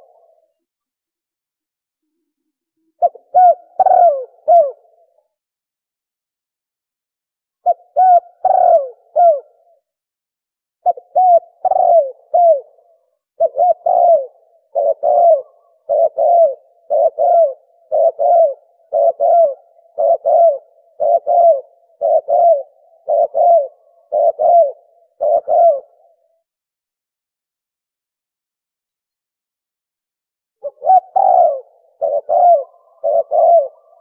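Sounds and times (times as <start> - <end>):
dove cooing: 0.0 - 0.6, 2.8 - 5.2, 7.6 - 9.9, 10.8 - 26.4, 30.6 - 34.0.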